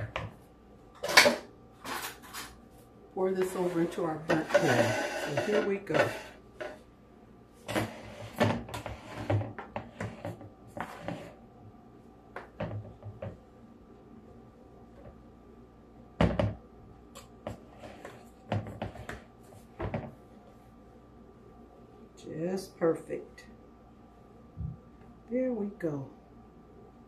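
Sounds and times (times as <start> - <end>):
spatula scraping batter from bowl: 3.4 - 6.8, 7.7 - 11.4.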